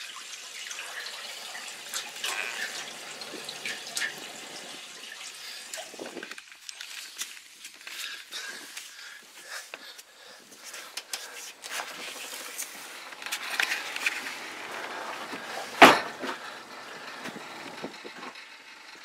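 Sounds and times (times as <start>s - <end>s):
steady hiss: 0.0s - 6.4s
loud thump: 15.8s - 16.3s.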